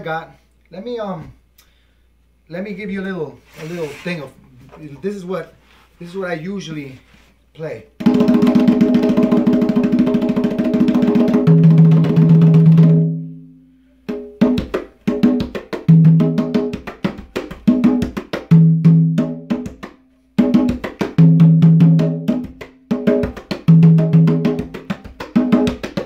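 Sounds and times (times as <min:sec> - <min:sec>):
congas played by hand: 0:08.0 - 0:26.0.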